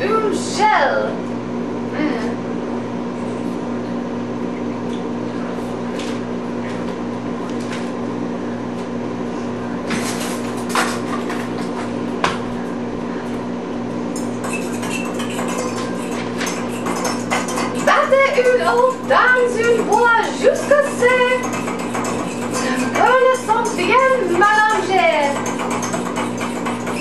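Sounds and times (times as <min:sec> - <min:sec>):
electrical hum: 0:00.0 - 0:27.0
kitchen things knocking and clinking: 0:14.4 - 0:27.0.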